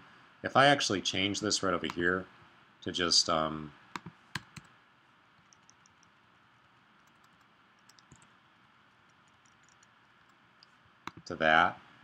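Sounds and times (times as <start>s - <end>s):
faint keyboard keystrokes: 5.4s - 6.2s, 7.0s - 11.3s.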